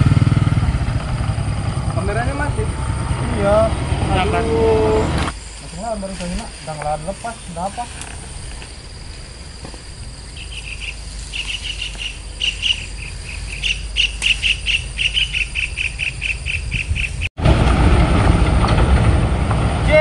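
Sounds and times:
loud rumbling noise: 0:00.0 - 0:05.4, 0:17.2 - 0:20.0
insect chirping in pulses: 0:00.2 - 0:17.3.

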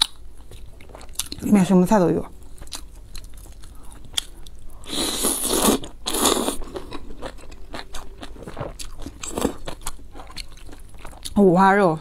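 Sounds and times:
person slurping noodles: 0:04.8 - 0:06.8.

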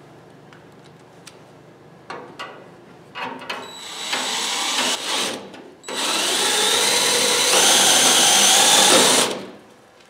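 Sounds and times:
cordless drill driving screw: 0:03.8 - 0:09.4
drill clicks: 0:05.9 - 0:09.4.

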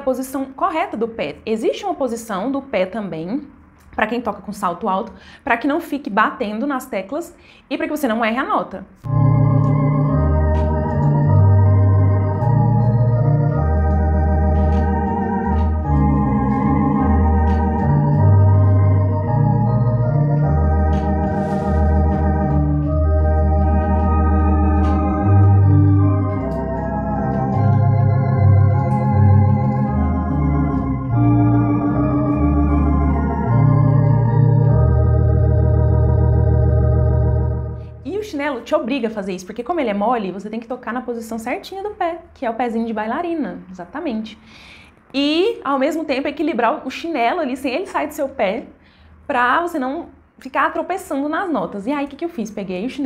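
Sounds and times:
electronic organ chords: 0:09.0 - 0:38.0
organ pedal bass notes: 0:09.0 - 0:38.0.

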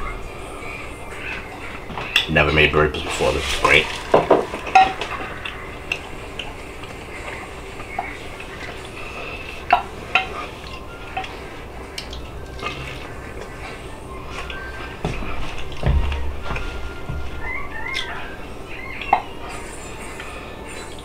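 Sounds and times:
person chewing and smacking: 0:04.0 - 0:19.3.

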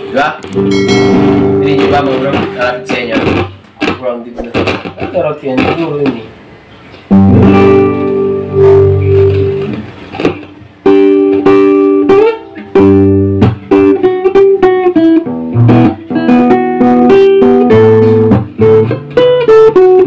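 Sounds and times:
amplified guitar picked melody: 0:00.4 - 0:03.5, 0:07.1 - 0:20.0.

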